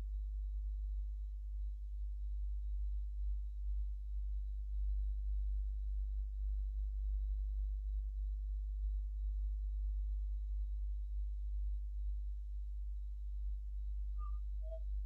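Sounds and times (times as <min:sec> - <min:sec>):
faint thin high tone: 0:14.2 - 0:14.8.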